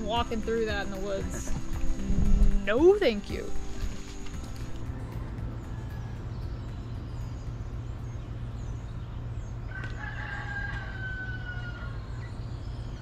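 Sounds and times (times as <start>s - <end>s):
small birds chirping: 0.0s - 10.2s, 10.8s - 13.0s
steady low background noise: 0.0s - 13.0s
rooster crowing: 4.6s - 6.4s, 9.6s - 12.4s.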